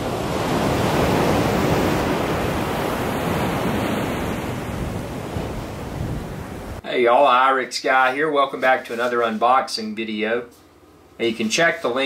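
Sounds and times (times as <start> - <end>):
surf breaking on beach: 0.0 - 6.8
wind on microphone: 0.0 - 6.8.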